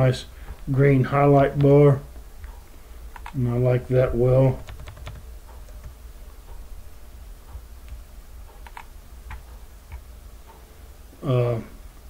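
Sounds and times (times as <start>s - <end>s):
steady low hum: 0.0s - 12.0s
computer mouse clicks: 2.4s - 3.4s, 4.6s - 6.6s, 7.5s - 10.6s.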